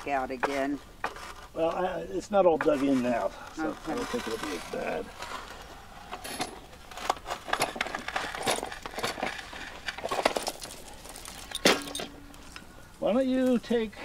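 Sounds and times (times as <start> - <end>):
hand truck chain rattling: 7.5 - 12.2.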